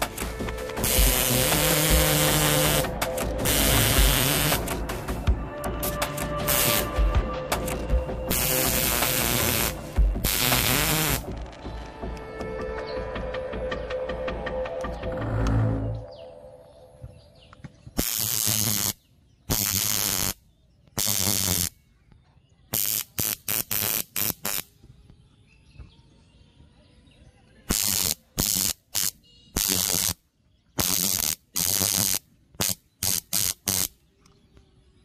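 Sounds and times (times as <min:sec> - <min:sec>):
electric arc buzzing and crackling: 0:00.0 - 0:05.1, 0:05.9 - 0:07.0, 0:07.7 - 0:11.4, 0:18.0 - 0:20.4, 0:21.0 - 0:21.7, 0:22.7 - 0:24.6, 0:27.7 - 0:30.2, 0:30.8 - 0:33.9.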